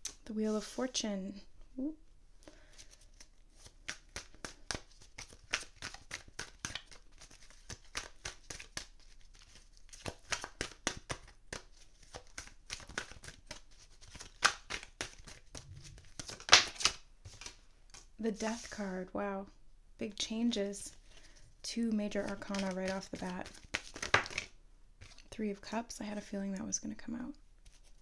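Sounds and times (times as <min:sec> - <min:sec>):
cards being shuffled: 0:02.7 - 0:18.8, 0:22.1 - 0:25.3, 0:27.6 - 0:28.0.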